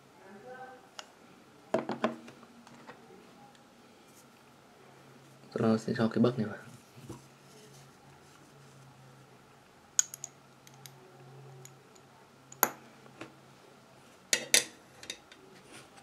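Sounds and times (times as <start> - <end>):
glass and metal clicks: 10.0 - 11.0.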